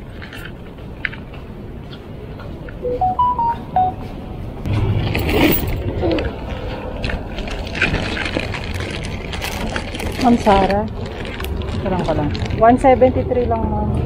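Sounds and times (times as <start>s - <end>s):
electronic chime beeps: 2.8s - 4.0s
low rumble: 3.3s - 14.0s.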